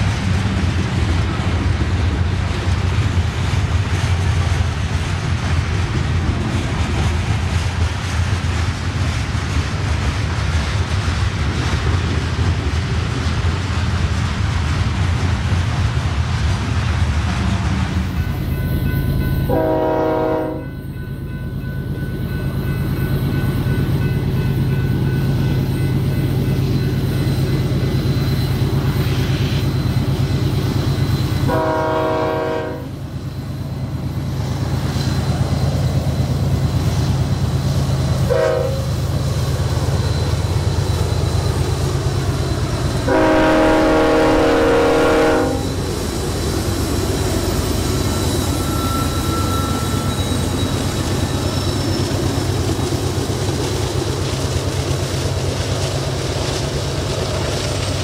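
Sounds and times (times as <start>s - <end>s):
locomotive air horn blasts: 19.5s - 20.8s, 31.5s - 33.0s, 38.3s - 38.9s, 43.1s - 45.8s.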